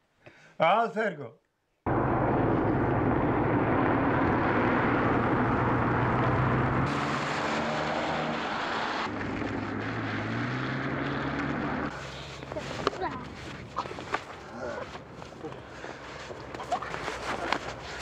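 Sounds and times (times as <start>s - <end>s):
car engine: 1.9s - 18.0s
tyres hissing on wet road: 6.9s - 9.1s.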